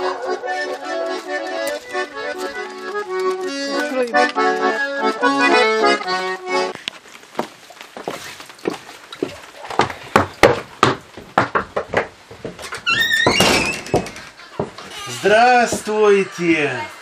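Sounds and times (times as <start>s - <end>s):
button accordion playing: 0.0s - 6.8s
knocks: 9.8s - 15.9s.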